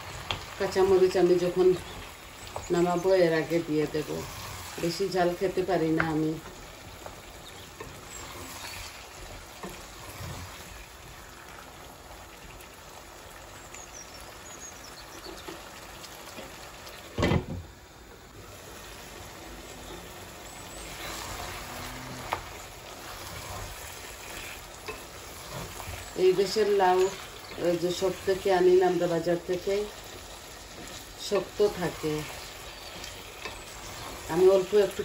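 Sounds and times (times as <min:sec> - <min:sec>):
curry sizzling in pot: 0:00.0 - 0:35.0
wooden spatula stirring: 0:00.1 - 0:11.6, 0:19.8 - 0:35.0.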